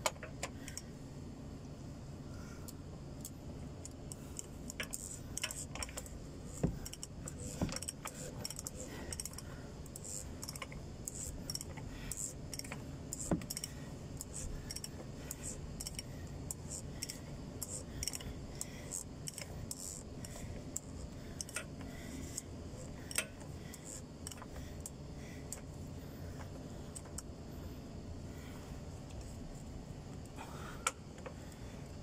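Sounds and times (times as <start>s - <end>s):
ratchet wrench clicking: 0.0s - 0.9s, 3.2s - 25.7s.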